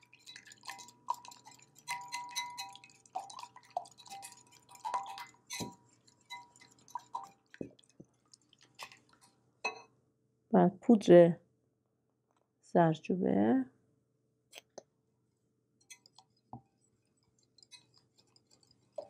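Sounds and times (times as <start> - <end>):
whisk clinking in glass bowl: 0.0 - 7.6, 15.8 - 19.0.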